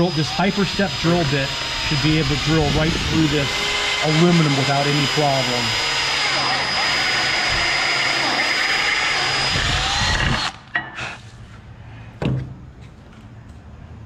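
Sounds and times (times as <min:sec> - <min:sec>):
drill boring through metal: 0:00.0 - 0:11.0
knock of drill set down: 0:12.2 - 0:12.6.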